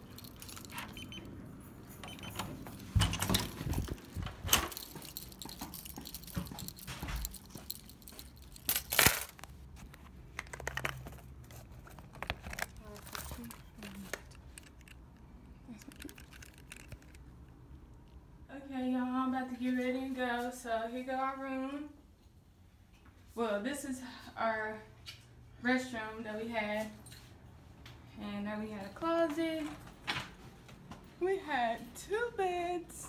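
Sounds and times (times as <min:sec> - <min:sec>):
small objects clicking and knocking: 0:03.8 - 0:09.5, 0:10.3 - 0:17.2.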